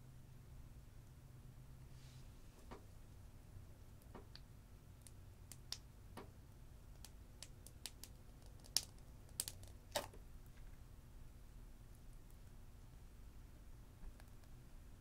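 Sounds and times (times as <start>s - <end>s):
clay slime clicks and pops: 6.9s - 10.2s.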